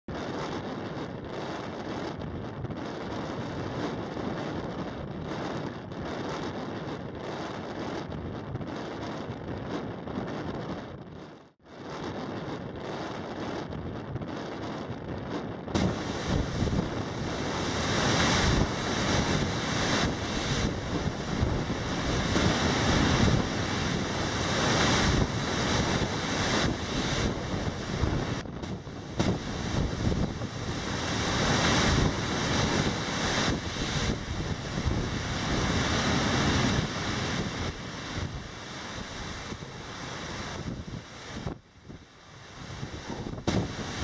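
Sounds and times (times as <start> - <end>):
wind buffeting microphone: 0.1 - 44.0
surf crashing on shingle: 15.8 - 41.6, 42.6 - 44.0.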